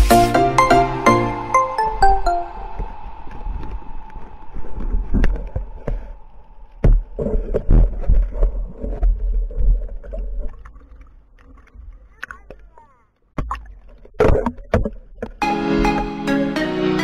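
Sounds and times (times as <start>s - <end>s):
low water rumble: 2.0s - 15.4s
muffled underwater knocks and thumps: 13.3s - 16.0s.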